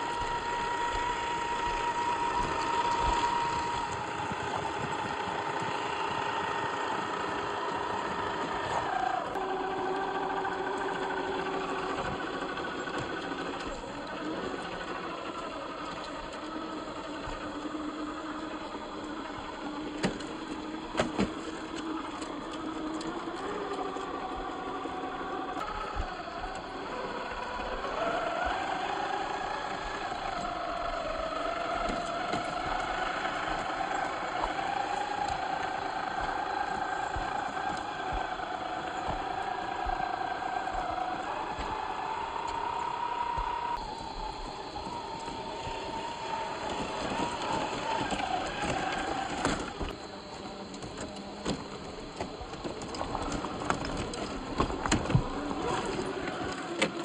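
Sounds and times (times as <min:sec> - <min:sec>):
small electric motor whining: 0:00.0 - 0:57.0.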